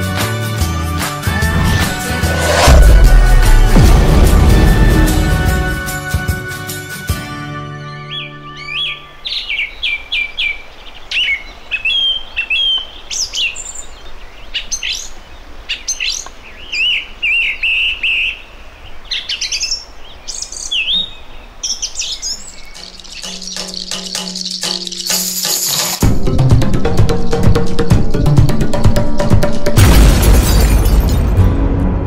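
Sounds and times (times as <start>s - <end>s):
music track: 0.0s - 8.6s
songbirds singing and calling: 7.4s - 29.7s.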